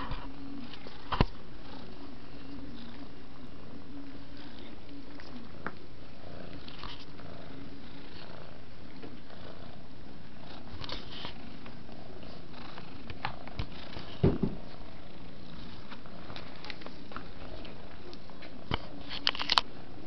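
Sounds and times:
cat purring: 0:00.0 - 0:20.0
dull thumps: 0:13.6 - 0:14.7.

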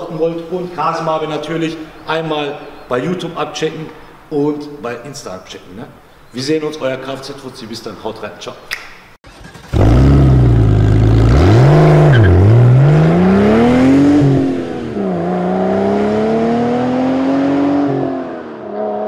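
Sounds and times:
car engine starting: 0:09.2 - 0:19.0
car engine accelerating: 0:09.3 - 0:19.0.

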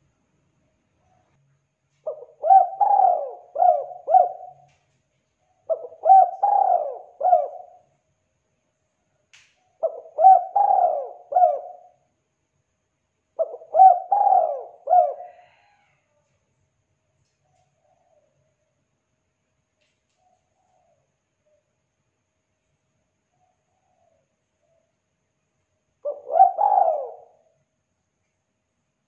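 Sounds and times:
dove cooing: 0:02.0 - 0:04.9, 0:05.5 - 0:07.9, 0:09.8 - 0:12.0, 0:13.4 - 0:16.0, 0:26.0 - 0:27.6.

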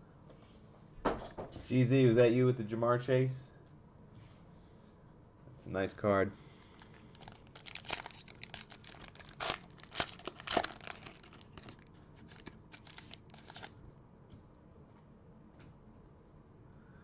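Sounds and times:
foil wrapper tearing and crinkling: 0:06.7 - 0:13.7.

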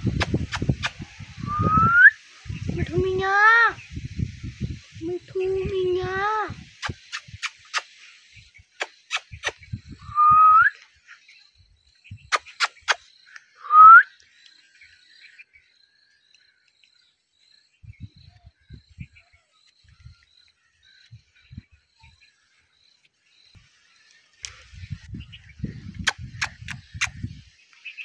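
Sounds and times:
sharp clicks: 0:00.1 - 0:01.0, 0:06.8 - 0:08.0, 0:12.3 - 0:13.5, 0:26.0 - 0:27.2
parakeet whistles rising: 0:01.4 - 0:02.2.

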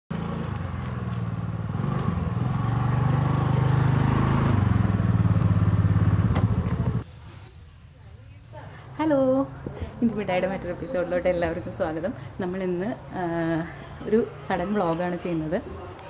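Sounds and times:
motor scooter engine: 0:00.1 - 0:07.0.

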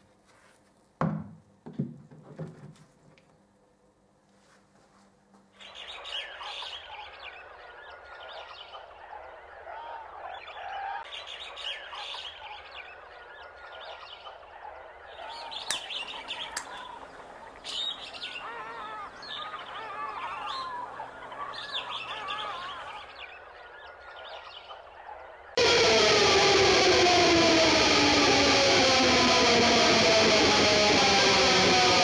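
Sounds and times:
chirping animal calls: 0:15.1 - 0:24.8
sharp clicks: 0:15.6 - 0:17.9
loud music: 0:25.6 - 0:32.0.

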